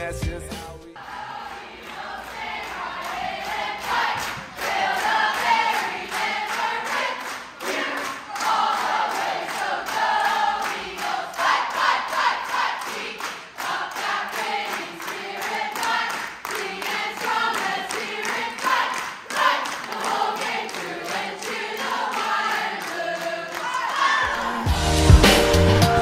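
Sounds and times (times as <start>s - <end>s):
pop music with heavy bass: 0.0s - 1.0s, 24.4s - 26.0s
group singing a cappella: 0.7s - 26.0s
rhythmic hand clapping: 1.3s - 24.0s.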